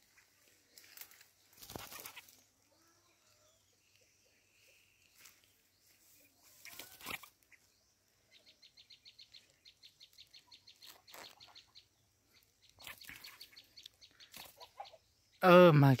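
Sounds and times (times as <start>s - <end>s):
birds chirping: 0.0s - 16.0s
wing flutters: 0.1s - 2.5s, 6.4s - 7.7s, 10.2s - 11.7s, 12.7s - 14.8s.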